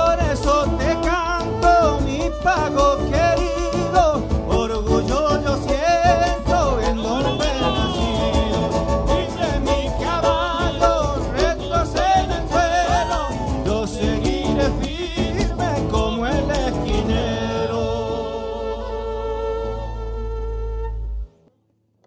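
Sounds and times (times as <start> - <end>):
violin lead melody: 0.0 - 14.7, 15.6 - 21.4
bass drum beat: 0.0 - 18.1
folk band playing: 0.0 - 21.4
guitar: 0.0 - 22.0.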